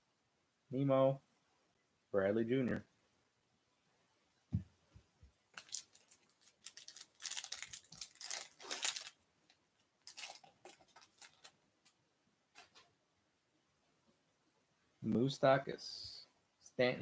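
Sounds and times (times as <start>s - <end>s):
foil wrapper tearing: 5.6s - 9.2s, 10.1s - 11.5s.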